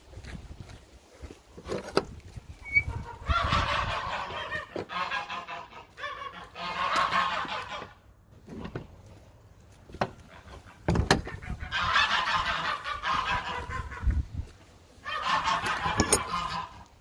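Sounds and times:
geese honking: 0:02.6 - 0:08.2, 0:10.1 - 0:14.2, 0:14.8 - 0:17.0.

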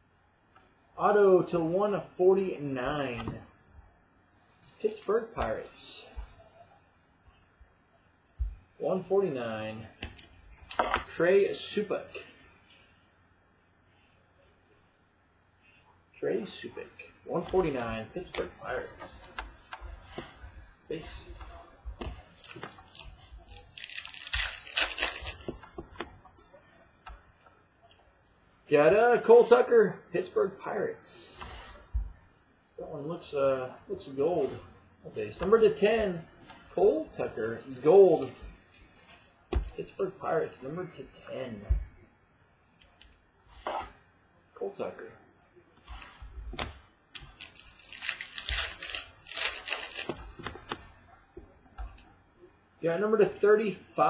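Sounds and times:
cards clicking and rustling: 0:22.0 - 0:26.1, 0:46.0 - 0:50.9
wrapper tearing and crinkling: 0:22.3 - 0:25.5, 0:47.1 - 0:50.5
plastic rustling and sliding: 0:47.1 - 0:51.0.

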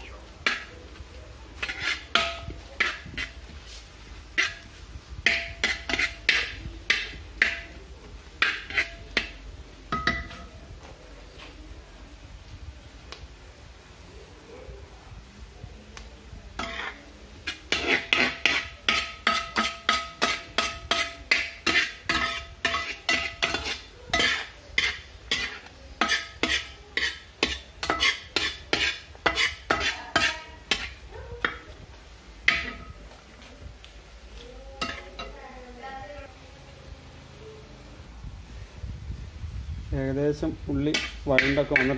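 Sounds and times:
spoon scraping metal pan: 0:00.0 - 0:00.9, 0:01.5 - 0:10.6, 0:16.6 - 0:31.8, 0:32.4 - 0:33.2, 0:34.8 - 0:35.4, 0:40.7 - 0:41.9
onions sauteing: 0:00.0 - 0:11.4, 0:12.1 - 0:41.9.

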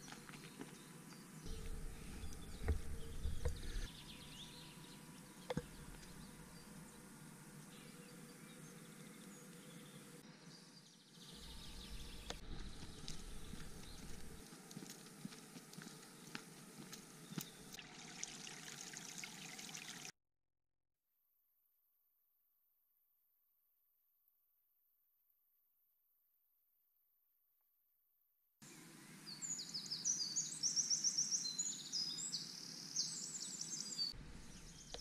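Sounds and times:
low rumbles: 0:01.5 - 0:03.9, 0:11.4 - 0:14.4.

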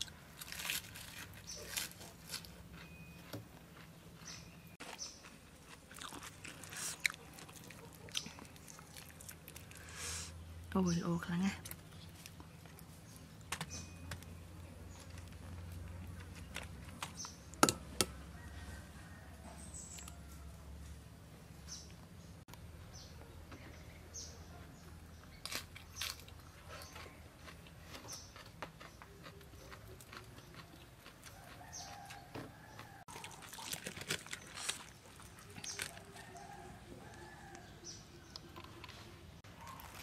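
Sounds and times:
small birds chirping: 0:01.4 - 0:05.5, 0:21.5 - 0:33.7.

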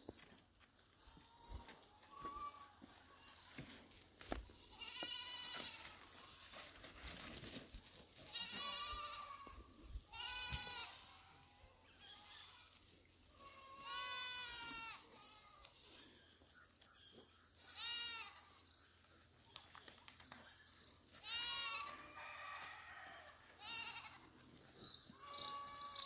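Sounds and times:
goats bleating: 0:04.5 - 0:06.7, 0:08.2 - 0:16.2, 0:17.6 - 0:18.6, 0:21.2 - 0:22.2, 0:23.6 - 0:24.4, 0:25.1 - 0:26.0.

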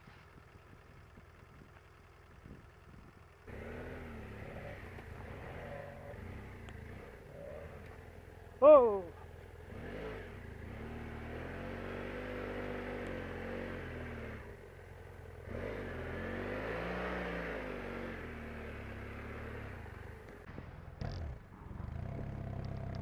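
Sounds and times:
motorcycle engine revving: 0:00.0 - 0:23.0.

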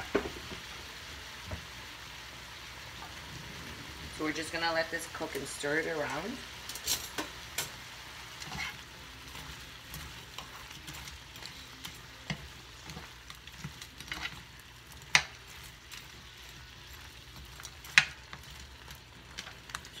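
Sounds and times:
shrimp sizzling in a frying pan: 0:00.0 - 0:20.0
stirring clacks against pan: 0:08.4 - 0:20.0.

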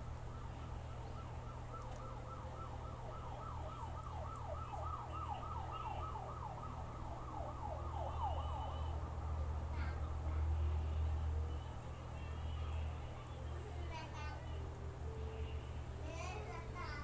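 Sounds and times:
siren yelping: 0:00.3 - 0:09.4.

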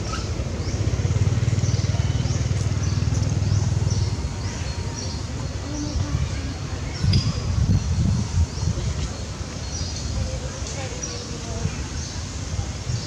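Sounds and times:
pulsing engine rumble: 0:00.0 - 0:10.2.

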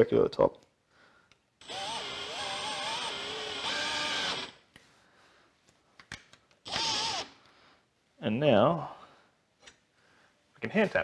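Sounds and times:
cordless drill motor running: 0:01.6 - 0:04.6, 0:06.7 - 0:07.3.

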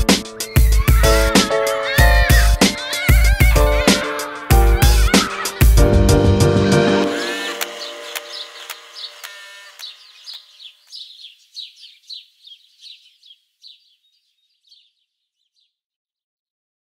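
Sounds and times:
music: 0:00.0 - 0:09.9
downward-sweeping bird chirps: 0:00.2 - 0:01.0, 0:07.0 - 0:15.8.

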